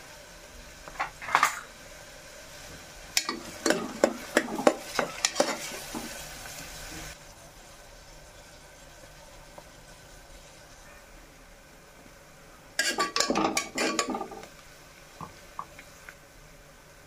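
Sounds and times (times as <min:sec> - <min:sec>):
onions sizzling in oil: 0:00.0 - 0:17.0
metal spoon scraping pot: 0:12.8 - 0:14.4.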